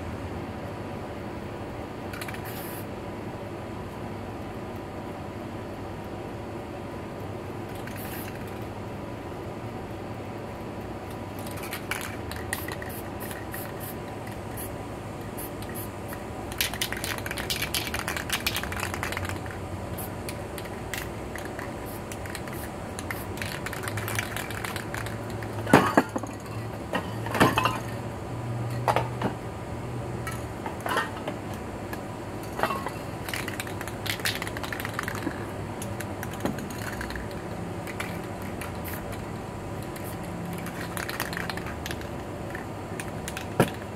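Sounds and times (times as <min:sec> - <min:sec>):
spray can rattling: 0:02.1 - 0:02.8, 0:07.7 - 0:08.5, 0:11.3 - 0:14.7, 0:15.3 - 0:26.4, 0:33.2 - 0:43.9
spray paint hissing: 0:02.2 - 0:02.9, 0:07.7 - 0:08.5, 0:11.4 - 0:25.7, 0:33.2 - 0:39.2, 0:39.8 - 0:42.1.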